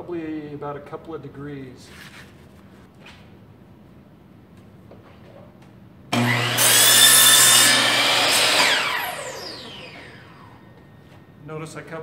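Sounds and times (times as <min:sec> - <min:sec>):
saw cutting through wood: 0:06.2 - 0:10.6
miter saw motor whine: 0:06.2 - 0:10.8.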